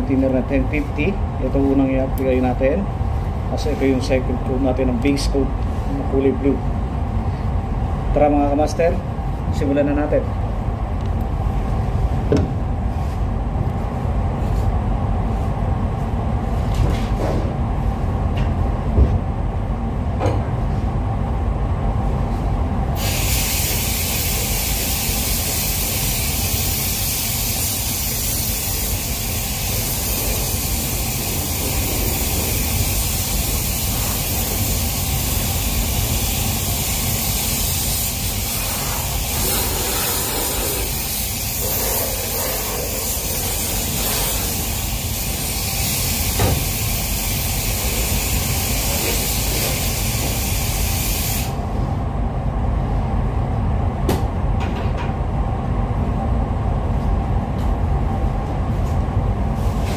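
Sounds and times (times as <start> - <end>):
ventilation low rumble: 0.0 - 59.9
paint spray gun hissing: 23.0 - 51.6.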